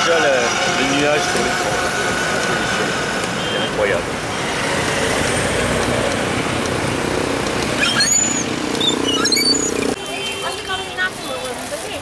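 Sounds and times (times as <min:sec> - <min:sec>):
street traffic noise: 0:00.0 - 0:12.0
short high chirps: 0:07.8 - 0:09.9.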